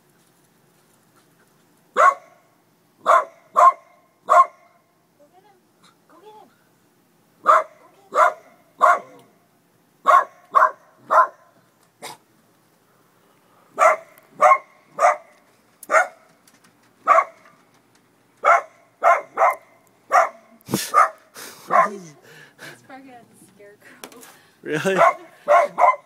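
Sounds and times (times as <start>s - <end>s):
small dog barking: 2.0s - 2.4s, 3.0s - 4.8s, 7.4s - 9.3s, 10.0s - 12.2s, 13.8s - 15.3s, 15.9s - 16.3s, 17.0s - 17.4s, 18.4s - 22.2s, 24.9s - 26.0s.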